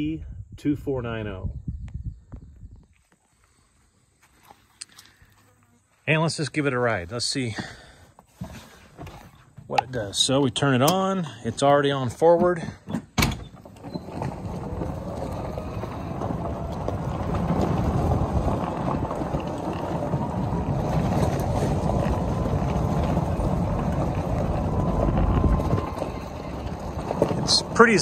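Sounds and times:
wind on microphone: 0.0 - 3.0, 14.3 - 27.8
tyres rumbling on gravel: 6.1 - 28.0.

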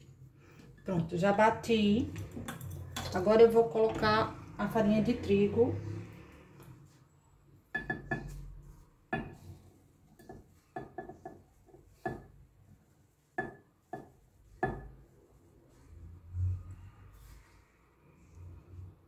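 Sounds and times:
spatula clinking on bowl and jar: 2.3 - 3.3.

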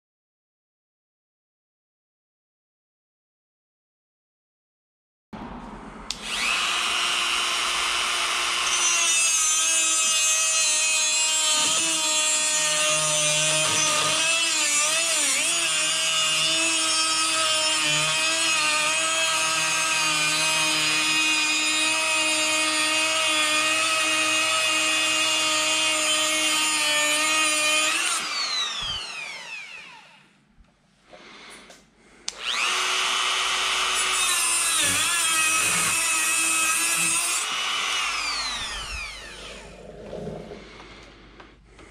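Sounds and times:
rotary tool grinding metal: 6.2 - 30.2, 32.4 - 41.0.

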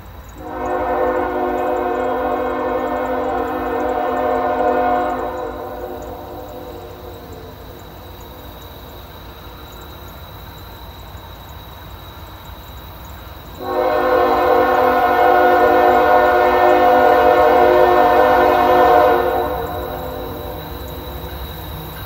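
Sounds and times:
low train rumble: 0.0 - 22.0
locomotive air horn: 0.4 - 7.8, 13.6 - 21.4.

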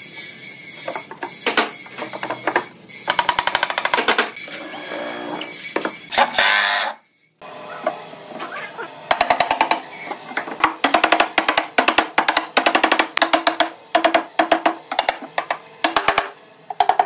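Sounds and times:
drill motor whining: 4.4 - 10.6.

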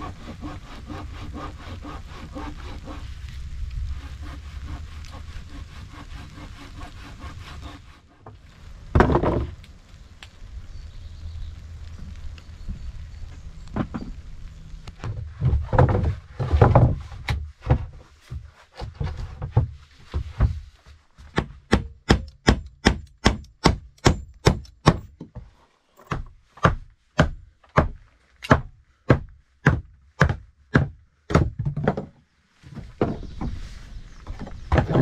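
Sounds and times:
hammer striking wooden planks: 21.3 - 25.4, 26.1 - 32.1.

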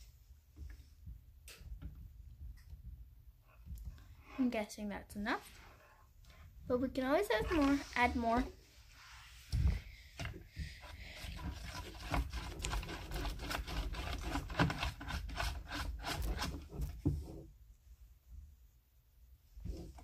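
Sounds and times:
slime scraping in container: 7.2 - 8.5, 10.9 - 16.9.

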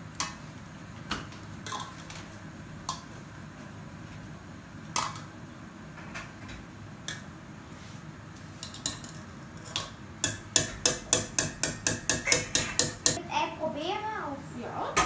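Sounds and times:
potato masher knocking in metal pot: 10.2 - 13.2.

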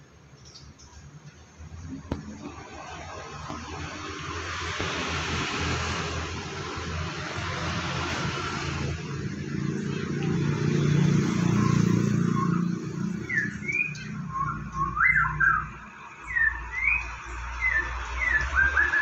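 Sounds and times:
bird singing whistled notes: 11.4 - 19.0.

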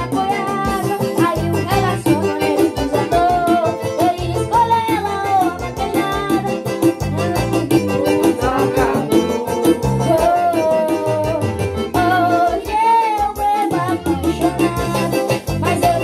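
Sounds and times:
bass: 0.0 - 16.0
boy singing into a microphone: 0.0 - 16.0
electric guitar: 0.0 - 16.0
keyboard: 0.0 - 16.0
steady beat: 0.0 - 16.0.

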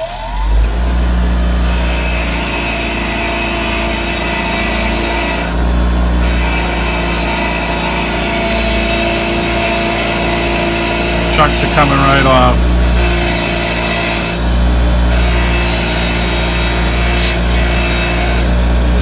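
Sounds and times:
bench grinder motor hum: 0.0 - 19.0
wire wheel scrubbing metal: 0.6 - 19.0.

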